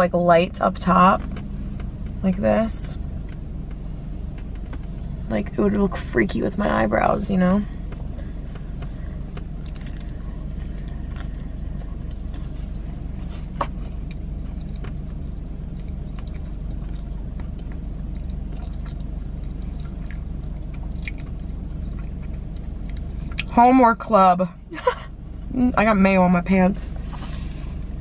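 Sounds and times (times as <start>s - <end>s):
car interior hum: 0.0s - 28.0s
person chewing food: 7.8s - 23.5s.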